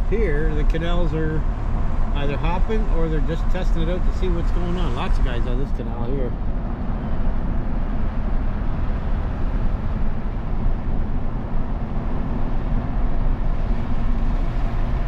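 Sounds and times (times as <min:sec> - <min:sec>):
truck road and engine noise: 0:00.0 - 0:15.0.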